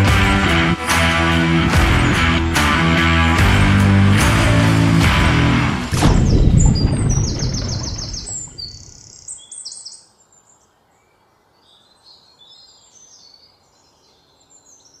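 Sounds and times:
songbirds chirping: 5.9 - 15.0.

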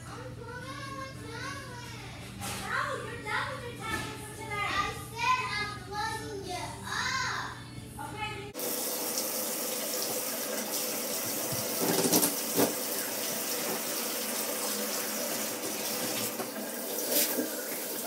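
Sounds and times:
water running from faucet: 8.6 - 18.0.

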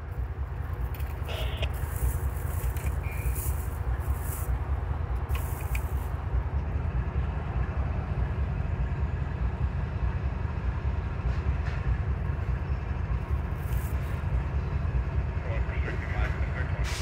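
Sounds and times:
diesel locomotives rumbling: 0.0 - 17.0.

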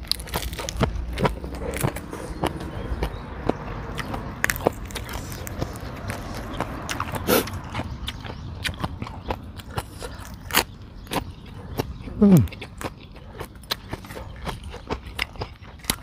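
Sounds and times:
chewing crunchy salad: 0.0 - 16.0
wet mouth sounds: 4.0 - 16.0.

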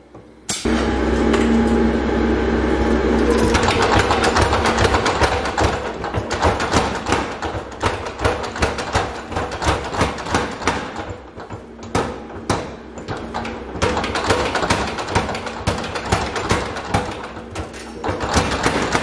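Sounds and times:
steady low hum: 0.0 - 7.5
power hammer striking hot steel: 0.5 - 1.9.

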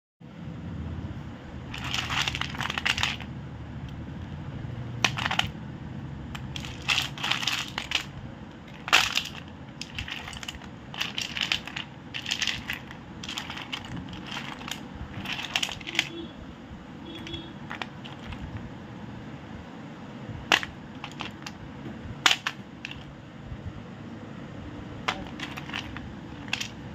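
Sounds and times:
clay chunks clattering and clinking: 1.7 - 3.3, 5.0 - 5.6, 6.3 - 16.2, 17.2 - 18.6, 20.5 - 21.6, 22.2 - 23.1, 25.0 - 26.8.

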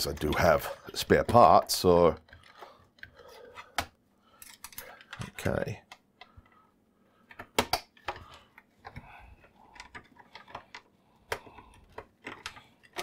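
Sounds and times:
screwdriver clicking and scraping plastic: 7.6 - 13.0.

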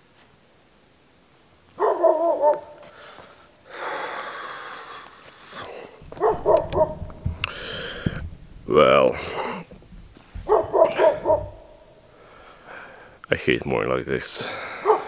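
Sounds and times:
dog barking: 1.8 - 2.8, 6.0 - 7.2, 10.4 - 11.8, 14.8 - 15.0.

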